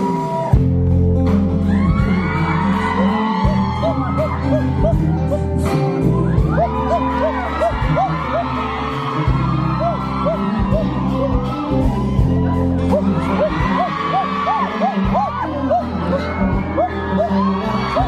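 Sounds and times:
bass line: 0.0 - 18.0
live pop band: 0.0 - 18.0
man singing into a microphone: 1.6 - 18.0.

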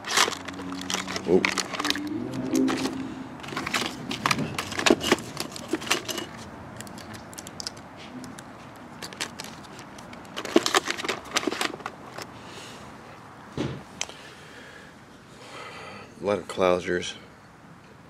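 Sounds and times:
tackle clicking and rattling: 0.0 - 12.3.

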